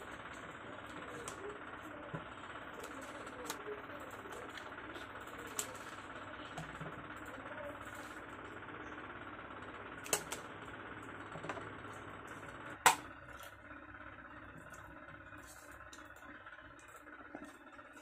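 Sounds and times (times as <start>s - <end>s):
paper ticking on rings: 0.0s - 11.2s.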